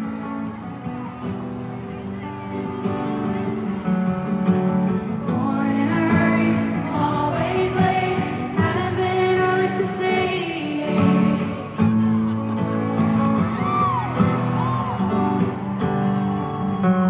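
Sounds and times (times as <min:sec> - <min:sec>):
woman singing lead vocal: 0:05.1 - 0:11.8.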